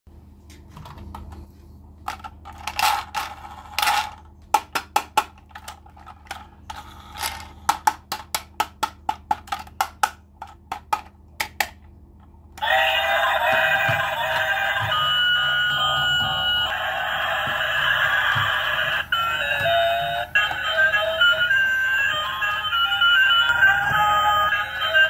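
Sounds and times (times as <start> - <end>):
plastic toy clicks and knocks: 2.1 - 11.8.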